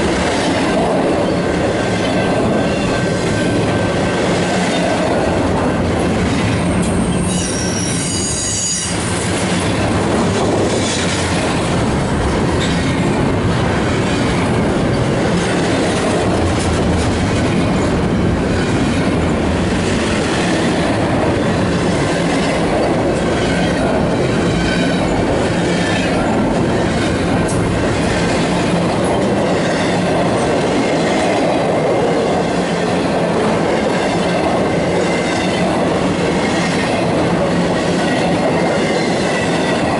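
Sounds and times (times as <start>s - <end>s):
freight train wheels rumbling on rail: 0.0s - 39.9s
high wheel squeal: 6.7s - 9.1s.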